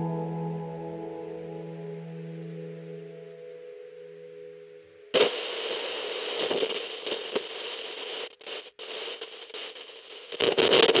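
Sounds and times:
crackling radio static: 5.1s - 11.0s.

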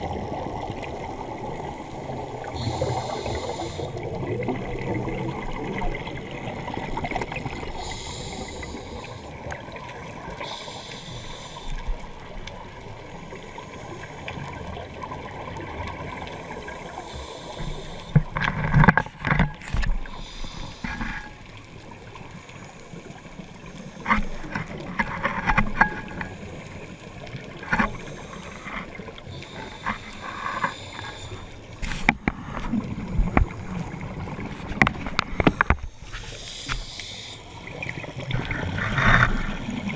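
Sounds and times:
regulator breathing hiss: 2.4s - 4.0s, 7.8s - 9.4s, 10.4s - 11.9s, 16.8s - 18.1s, 20.0s - 21.1s, 28.0s - 32.0s, 35.6s - 37.6s
sharp knocks underwater: 31.8s - 33.6s.

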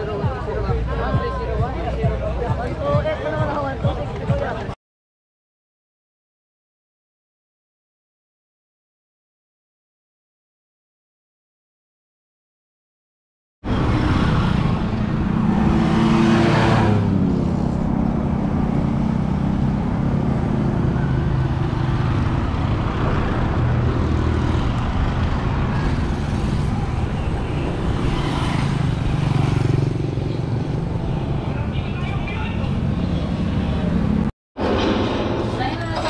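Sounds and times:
cars and motorcycles passing: 13.6s - 36.0s.

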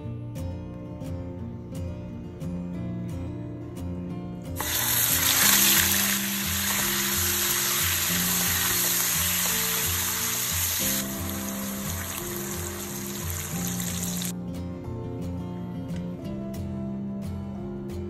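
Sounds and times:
meat sizzling in hot oil: 4.6s - 14.3s
water poured into pan: 4.6s - 14.3s.

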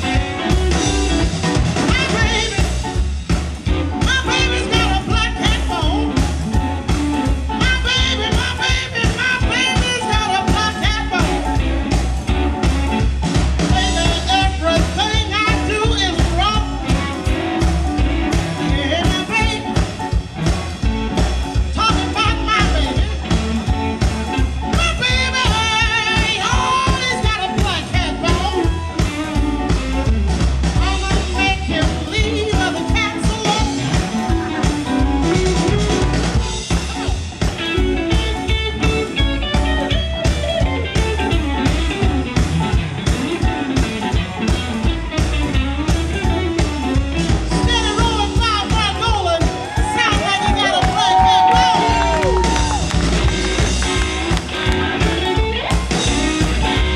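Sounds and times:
bass guitar: 0.0s - 56.9s
drums keeping a beat: 0.0s - 56.9s
electric guitar: 0.0s - 56.9s
woman singing: 1.8s - 2.7s, 4.0s - 6.1s, 7.6s - 11.6s, 13.7s - 17.1s, 18.6s - 19.8s, 21.7s - 23.1s, 24.8s - 28.8s, 30.8s - 33.8s.

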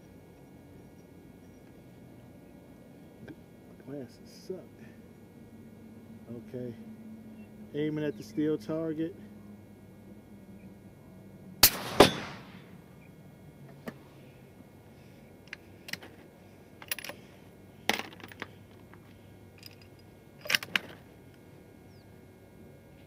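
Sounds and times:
bullet striking steel target: 11.6s - 12.7s
rifle shot: 11.6s - 12.7s.

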